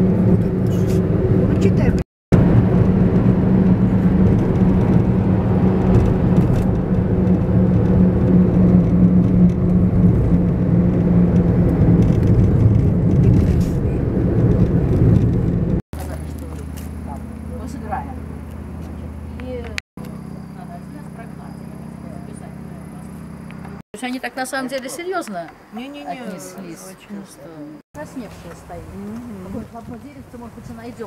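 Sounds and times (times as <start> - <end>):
car road noise from inside: 0.0 - 23.8.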